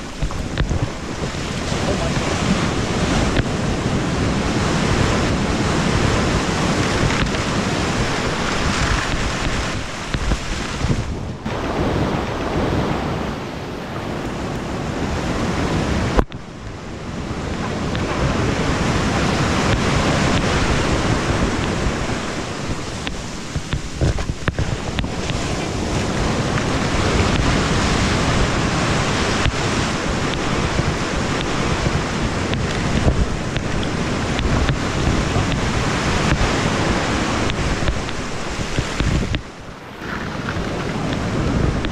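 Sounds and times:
breaking surf washing in: 0:00.0 - 0:41.9
wind buffeting microphone: 0:00.0 - 0:41.9.

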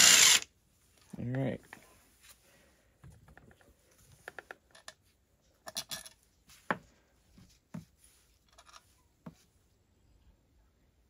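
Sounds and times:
clinks of small steel parts: 0:05.6 - 0:06.2.

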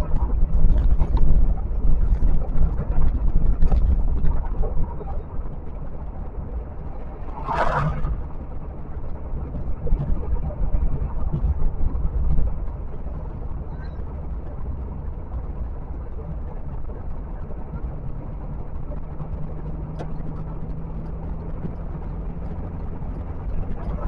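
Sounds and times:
road and wind noise: 0:00.0 - 0:24.0
brief rush of noise: 0:07.2 - 0:08.2.

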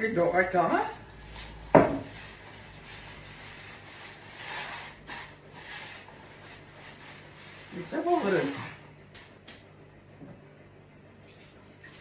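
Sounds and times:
hands rubbing grains in bowl: 0:01.2 - 0:08.8.

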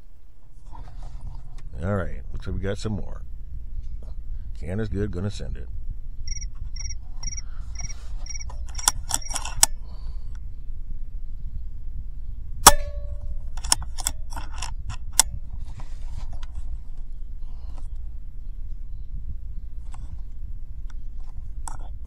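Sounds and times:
steady low rumble: 0:00.0 - 0:22.0
air rifle clicks and knocks: 0:07.2 - 0:09.8, 0:12.6 - 0:15.4.

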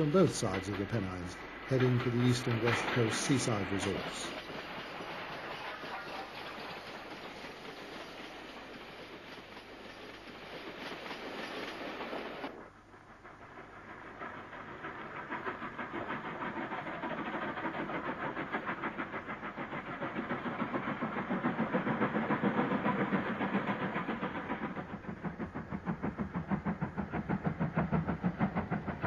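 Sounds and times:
rolling coaches: 0:00.0 - 0:04.5
steam hiss: 0:00.0 - 0:29.0
steam locomotive exhaust beats: 0:00.0 - 0:29.0.

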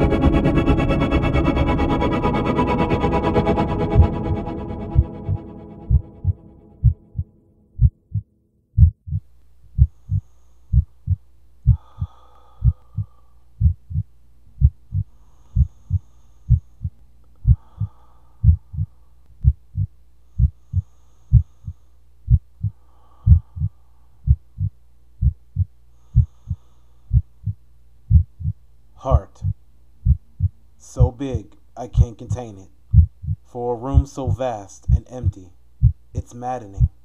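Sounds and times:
heartbeat thumps: 0:00.0 - 0:31.4, 0:32.9 - 0:37.0
low steady hum: 0:00.0 - 0:37.0.

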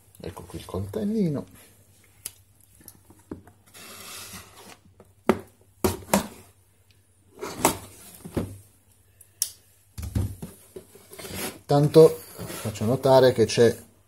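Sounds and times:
knife scraping cardboard: 0:03.7 - 0:04.8, 0:11.0 - 0:11.6.

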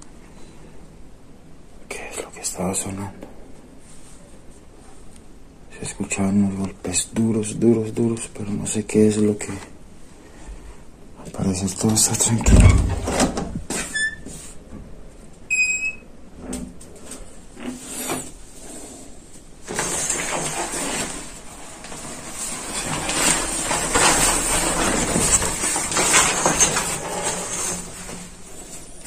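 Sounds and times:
shower curtain rustling: 0:17.0 - 0:29.0.

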